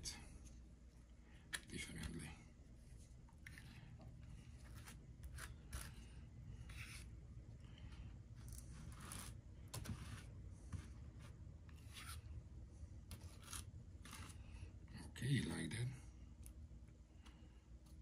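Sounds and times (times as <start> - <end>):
palette knife scraping paste: 3.4 - 7.1, 8.4 - 12.3, 13.1 - 14.6.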